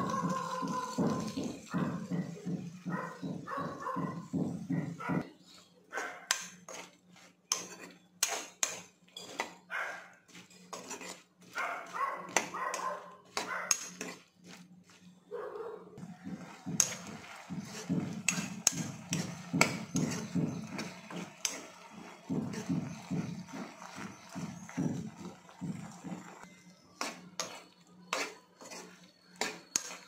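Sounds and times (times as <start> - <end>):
spoon clinking and scraping pan: 6.3 - 15.0, 16.0 - 30.0.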